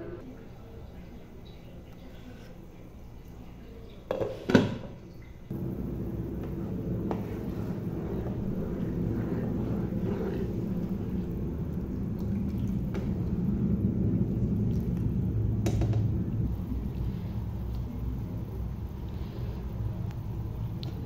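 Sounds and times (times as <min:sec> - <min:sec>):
gravy simmering in a pan: 0:05.5 - 0:21.0.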